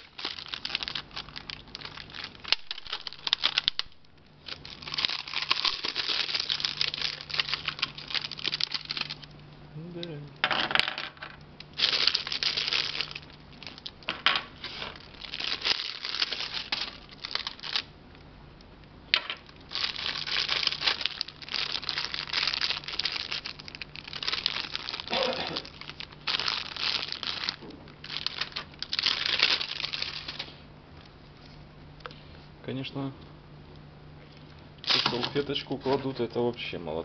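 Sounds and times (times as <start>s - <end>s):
plastic bags crinkling: 0.0s - 9.4s, 11.7s - 17.9s, 19.2s - 30.6s, 34.8s - 36.7s.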